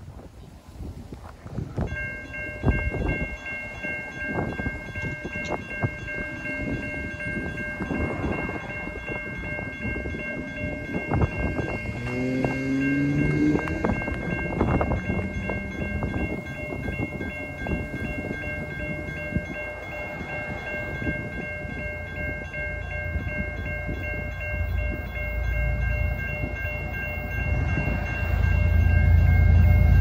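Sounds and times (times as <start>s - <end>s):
train rumble: 0.0s - 30.0s
distant locomotive horn: 11.7s - 16.3s.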